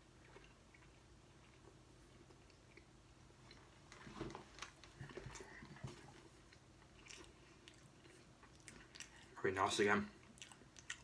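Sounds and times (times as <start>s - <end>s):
mouth chewing clicks and smacks: 6.4s - 9.4s, 10.2s - 11.0s.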